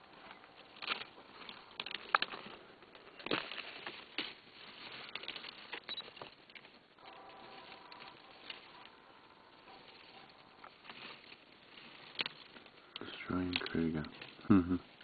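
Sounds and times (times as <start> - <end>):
elephant snapping twigs: 0.2 - 9.0.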